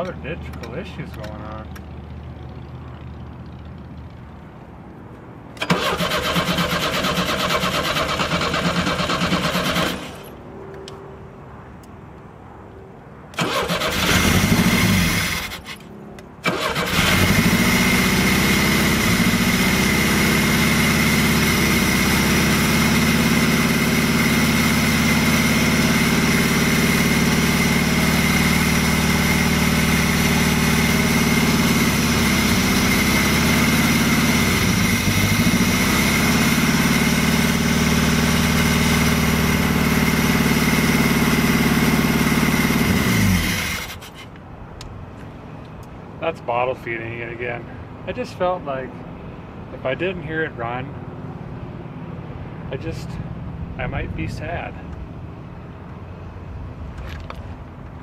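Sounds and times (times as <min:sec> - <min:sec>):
car engine running: 0:16.4 - 0:44.3.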